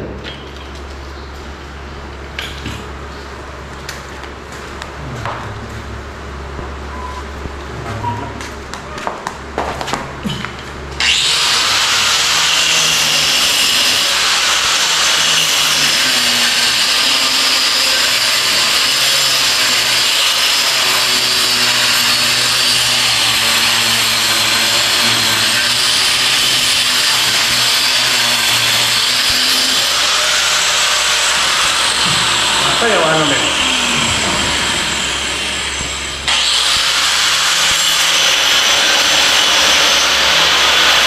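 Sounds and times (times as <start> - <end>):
angle grinder cutting concrete: 11.0 - 41.0.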